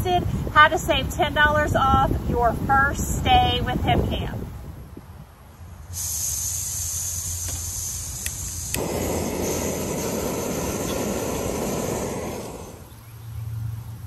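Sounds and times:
gas hissing from stove valve: 5.9 - 12.9
gas burner roaring: 5.9 - 13.2
lighter clicks: 7.4 - 8.9.

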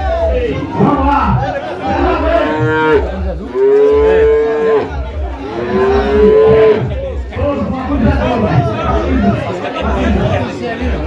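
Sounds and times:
cattle mooing: 1.9 - 6.8.

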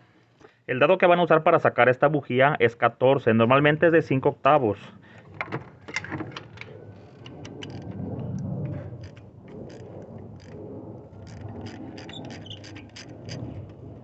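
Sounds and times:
tool rattling against engine: 5.1 - 8.0.

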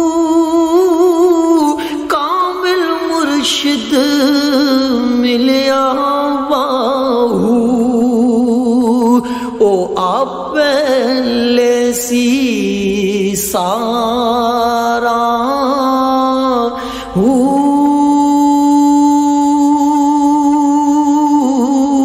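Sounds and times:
man singing with vibrato: 0.0 - 22.0.

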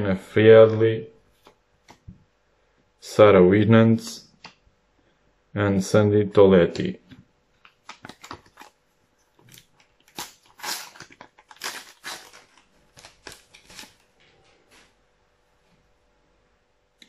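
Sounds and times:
foil wrapper crinkling: 7.6 - 8.8, 9.4 - 14.2.

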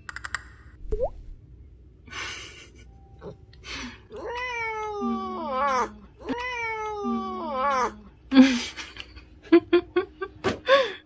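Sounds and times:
cat yawning cries: 4.1 - 8.0.

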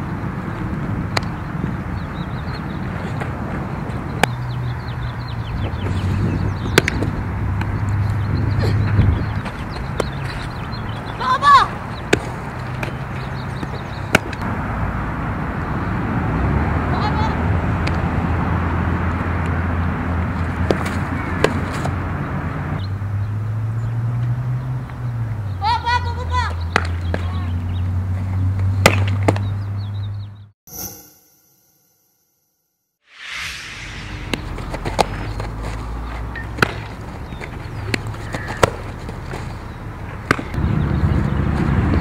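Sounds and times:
steady low rumble: 33.2 - 35.4.

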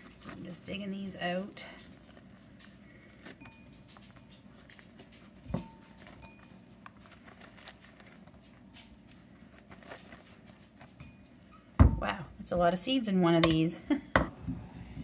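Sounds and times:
scraping seeds from squash: 0.0 - 11.0.

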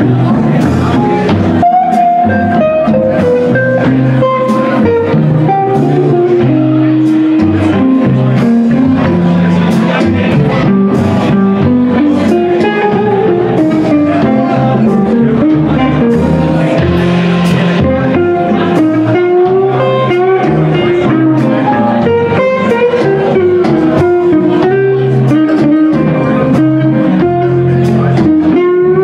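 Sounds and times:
blues band playing: 0.0 - 29.0
electric guitar lead: 0.0 - 29.0.

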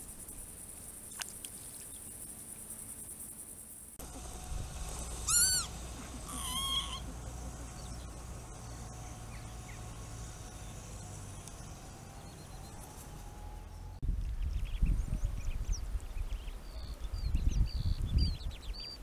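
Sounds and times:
lapwing calling: 4.0 - 14.0
low steady rumble: 4.0 - 16.4.

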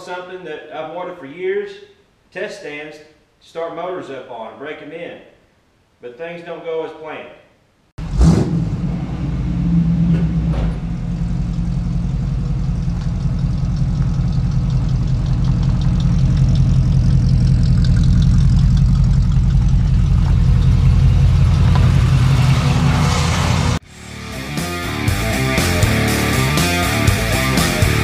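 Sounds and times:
pickup truck engine rumbling: 8.0 - 24.4.

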